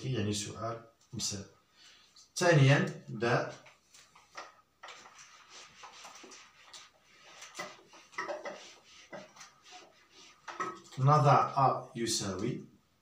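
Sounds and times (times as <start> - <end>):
eraser rubbing on whiteboard: 4.2 - 11.0.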